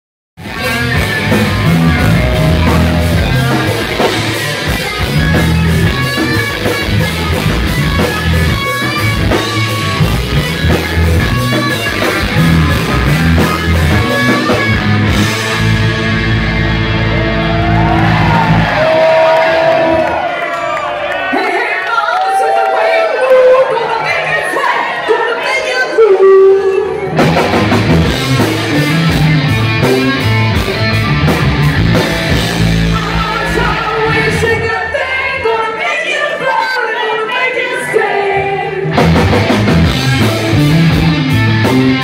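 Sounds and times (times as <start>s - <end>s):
drum kit: 0.4s - 19.9s, 27.1s - 34.6s, 38.9s - 42.0s
electric bass: 0.4s - 20.0s, 27.1s - 34.8s, 38.9s - 42.0s
electric guitar: 0.4s - 20.4s, 26.0s - 35.0s, 38.1s - 42.0s.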